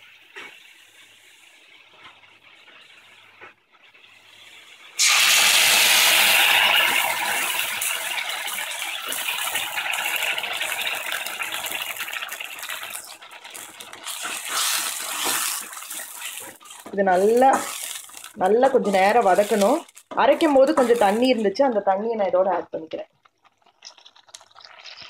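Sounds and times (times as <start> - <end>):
paste sizzling in hot oil: 0.0 - 21.8, 23.2 - 25.0
spatula scraping pan: 13.5 - 21.5.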